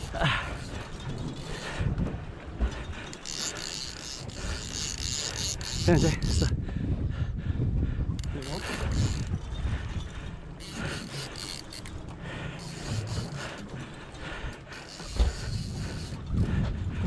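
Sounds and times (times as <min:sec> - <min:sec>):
fishing reel ratcheting: 0:03.1 - 0:06.5, 0:08.2 - 0:09.6, 0:10.6 - 0:12.0, 0:12.6 - 0:13.8, 0:14.7 - 0:16.3.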